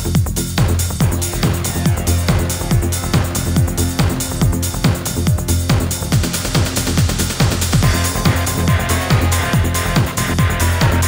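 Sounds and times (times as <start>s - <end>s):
electronic dance music: 0.0s - 11.0s
held bass line: 0.0s - 11.0s
thumping kick drum: 0.1s - 10.5s.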